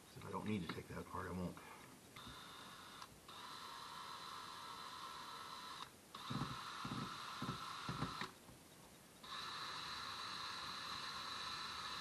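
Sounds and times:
cordless drill motor running: 0:02.2 - 0:08.4, 0:09.2 - 0:12.0.

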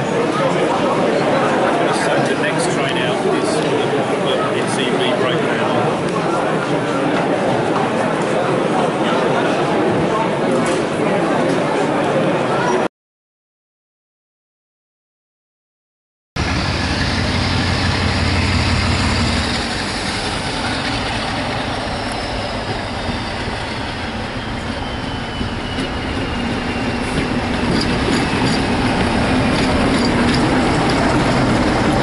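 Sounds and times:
diesel locomotive rumble: 0:16.4 - 0:32.0
train coaches clicking: 0:16.4 - 0:32.0.

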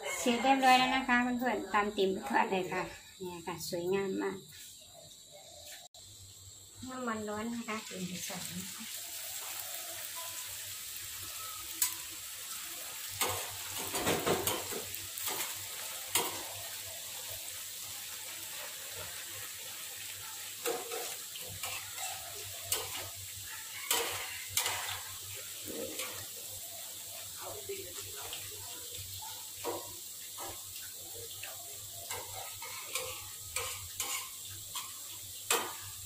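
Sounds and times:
deep-frying sizzle: 0:00.0 - 0:36.0
metal spatula scraping wok: 0:20.6 - 0:26.4, 0:32.0 - 0:35.8.

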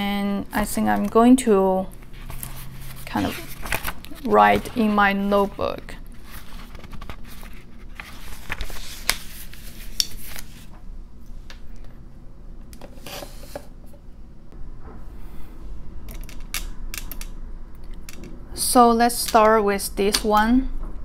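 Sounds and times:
notebook pages rustling: 0:02.0 - 0:10.7.

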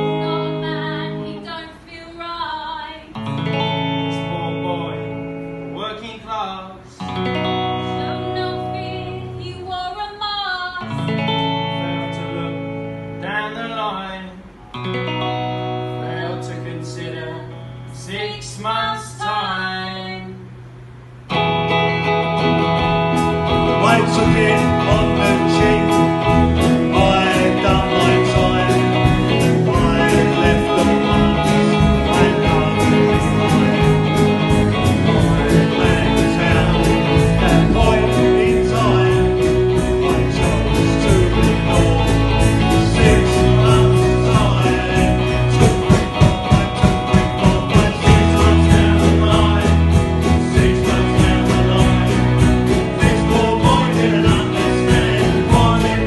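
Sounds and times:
electric guitar: 0:00.0 - 0:01.6, 0:03.1 - 0:05.9, 0:06.9 - 0:09.9, 0:10.6 - 0:56.0
man singing: 0:03.4 - 0:07.2, 0:11.2 - 0:14.6, 0:15.9 - 0:20.2, 0:23.5 - 0:56.0
drums: 0:20.4 - 0:56.0.

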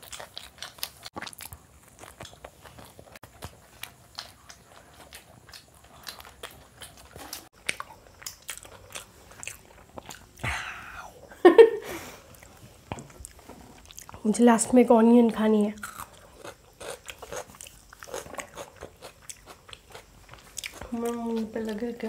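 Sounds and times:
pizza chewing crunches: 0:00.0 - 0:10.4, 0:15.8 - 0:21.4.

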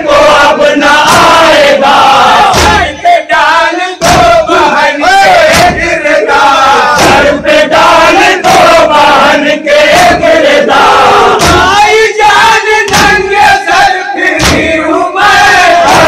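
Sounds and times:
men chanting into microphones: 0:00.0 - 0:16.0
hands thumping on chests: 0:01.0 - 0:01.5, 0:02.4 - 0:03.0, 0:04.0 - 0:06.1, 0:06.9 - 0:08.9, 0:11.3 - 0:11.9, 0:12.8 - 0:14.9.

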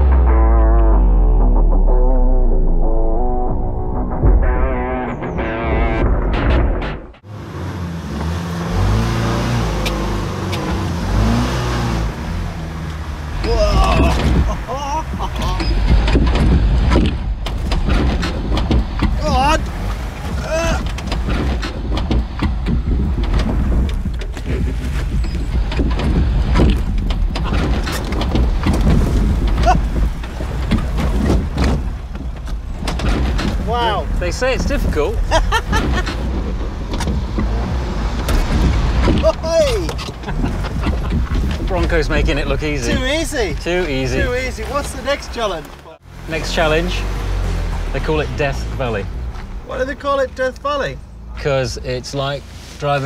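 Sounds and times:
engine revving at low speed: 0:07.2 - 0:13.6, 0:34.8 - 0:39.2, 0:46.0 - 0:49.7
knocks: 0:15.2 - 0:19.3, 0:20.8 - 0:33.7.

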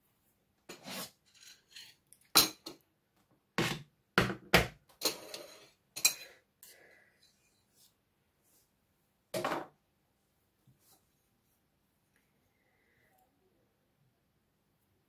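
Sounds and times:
cutlery clinking on plates: 0:01.4 - 0:02.8, 0:05.0 - 0:06.4.

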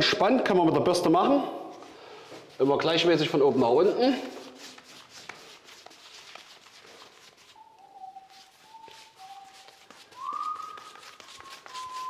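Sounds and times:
paint brush swishing on wall: 0:02.2 - 0:12.0
person whistling a slow tune: 0:07.6 - 0:12.0.

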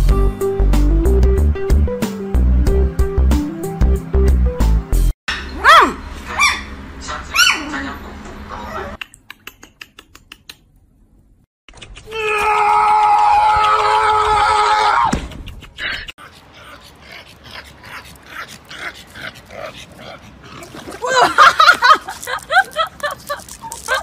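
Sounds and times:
puppy yipping: 0:05.3 - 0:07.7.

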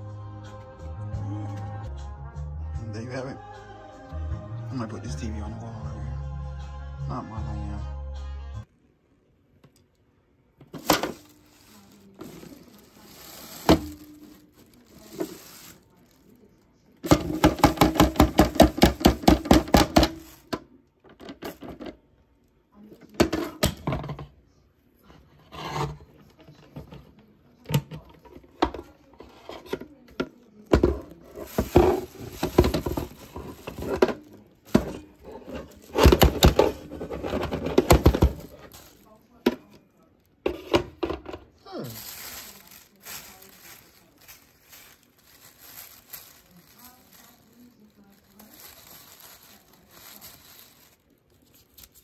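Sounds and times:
debris dropping into bag: 0:10.7 - 0:16.3, 0:30.8 - 0:39.2, 0:41.8 - 0:51.1
plastic knocks and rattles: 0:17.0 - 0:20.4, 0:29.6 - 0:38.9.

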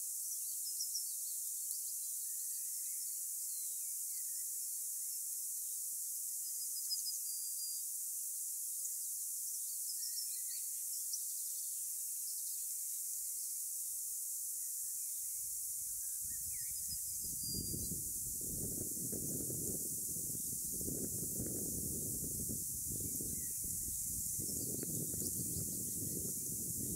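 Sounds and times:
steady high hiss: 0:00.0 - 0:26.9
small birds chirping: 0:00.3 - 0:07.9, 0:08.9 - 0:13.6, 0:14.5 - 0:26.9
wind buffeting microphone: 0:16.2 - 0:26.9.

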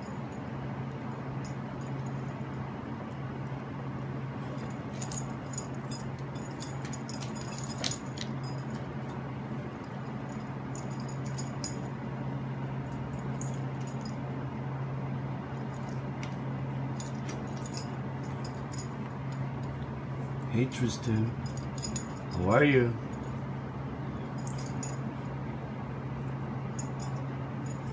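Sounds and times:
low steady hum: 0:00.0 - 0:27.9
collar tag jingling: 0:04.5 - 0:09.2, 0:09.8 - 0:12.0, 0:16.9 - 0:19.8, 0:21.1 - 0:23.5, 0:24.2 - 0:25.2, 0:26.8 - 0:27.9.

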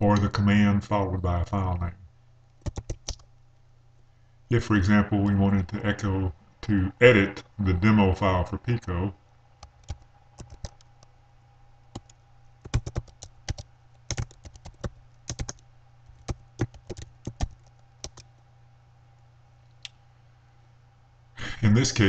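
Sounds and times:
faint steady hum: 0:00.0 - 0:22.0
keyboard typing: 0:02.6 - 0:03.3, 0:09.6 - 0:11.1, 0:11.9 - 0:18.3.

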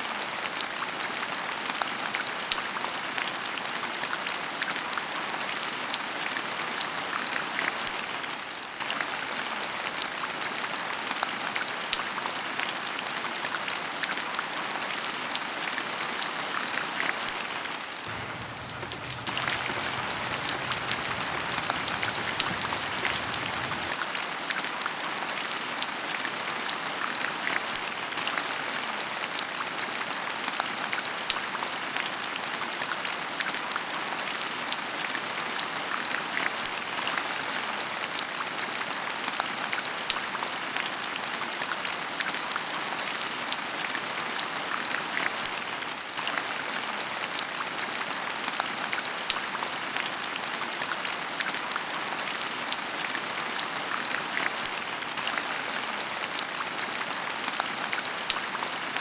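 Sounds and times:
raindrops ticking on surfaces: 0:18.0 - 0:24.0
heavy rain falling: 0:18.0 - 0:24.2.

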